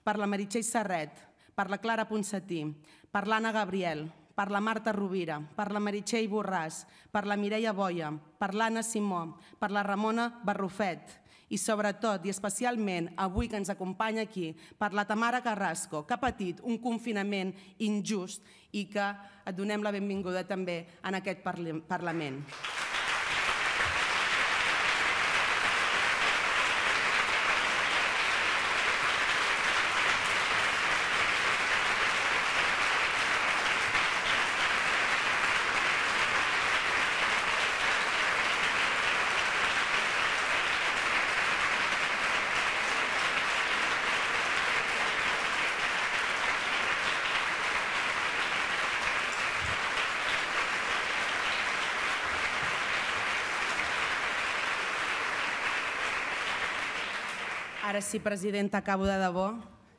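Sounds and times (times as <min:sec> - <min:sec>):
large crowd applauding: 0:22.4 - 0:58.1.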